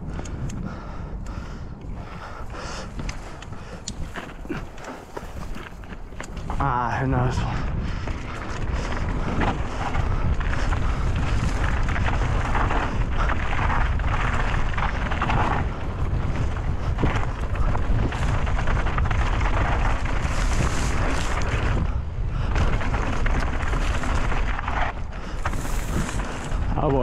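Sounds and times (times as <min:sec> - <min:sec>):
tyres on dry dirt: 0:00.0 - 0:27.0
wind buffeting microphone: 0:00.0 - 0:27.0
grass brushing against bike: 0:19.0 - 0:21.8, 0:22.9 - 0:27.0.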